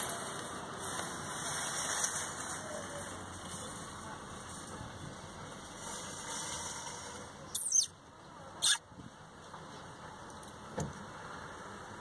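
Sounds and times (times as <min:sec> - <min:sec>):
starling squeaky calls: 0:07.5 - 0:07.9, 0:08.6 - 0:08.8.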